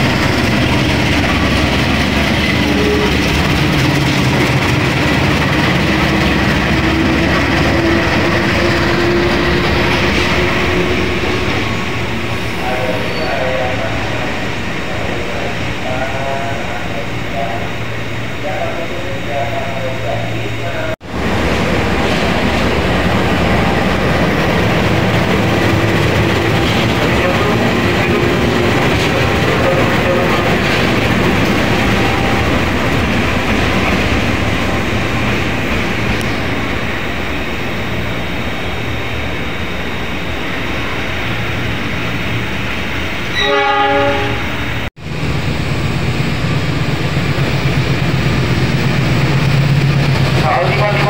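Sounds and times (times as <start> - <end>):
wheels rumbling on rail: 0.0 - 51.0
locomotive horn blast: 2.6 - 3.2, 43.3 - 44.8.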